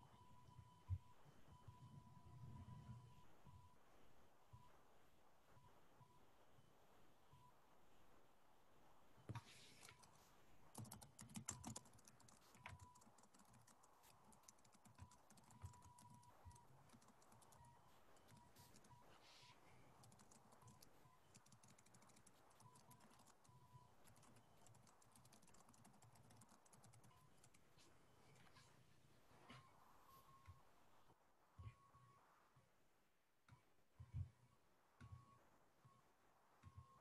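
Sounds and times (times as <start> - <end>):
faint keyboard typing: 9.2 - 28.8.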